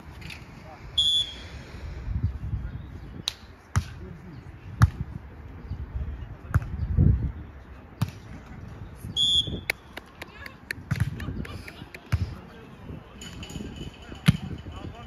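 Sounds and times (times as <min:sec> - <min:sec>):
referee's whistle blast: 0:01.0 - 0:01.4, 0:09.2 - 0:09.7.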